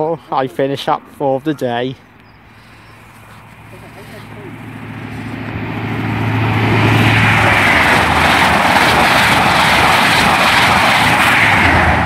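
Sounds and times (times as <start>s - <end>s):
train diesel engine drone: 0.0s - 12.0s
train wheels rushing on rails: 3.5s - 12.0s.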